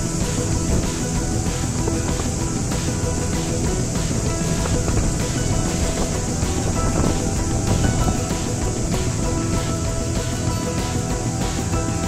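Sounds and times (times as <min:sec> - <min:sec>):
background music with sustained notes: 0:00.0 - 0:12.0.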